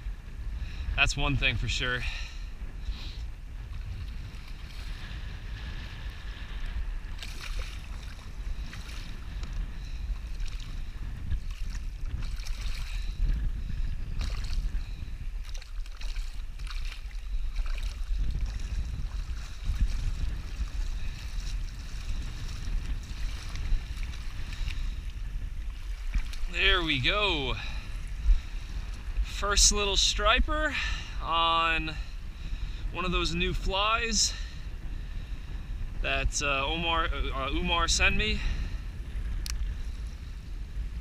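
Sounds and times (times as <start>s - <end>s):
wind rumbling on microphone: 0.0s - 41.0s
fish splashing water: 7.1s - 9.1s, 14.2s - 14.7s, 15.4s - 21.8s.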